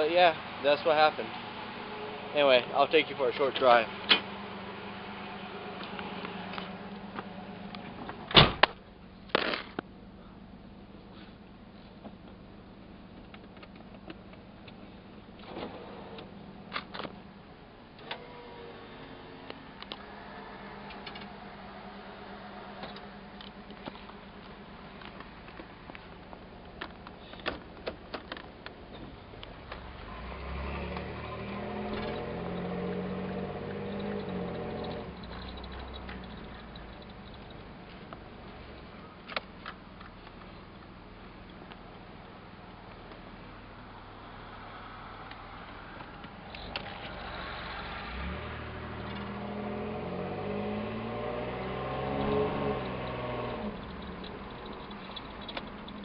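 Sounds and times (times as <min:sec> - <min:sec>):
car engine accelerating: 0:00.0 - 0:08.3, 0:18.0 - 0:27.4, 0:28.4 - 0:40.5, 0:43.4 - 0:56.0
sharp clicks and knocks: 0:52.2 - 0:56.0.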